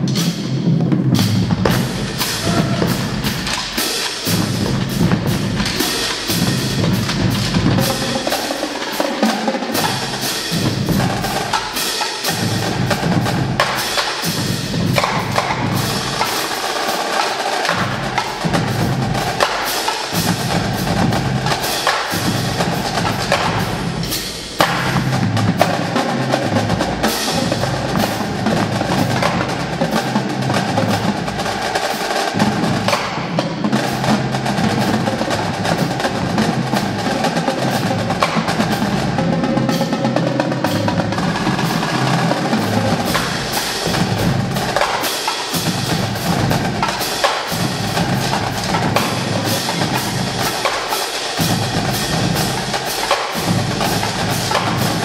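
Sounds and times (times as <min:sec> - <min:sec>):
loud accented drum hit: 0:00.0 - 0:08.9, 0:09.7 - 0:17.0, 0:40.6 - 0:55.0
drumline playing: 0:00.0 - 0:55.0
hand cymbals: 0:42.6 - 0:55.0.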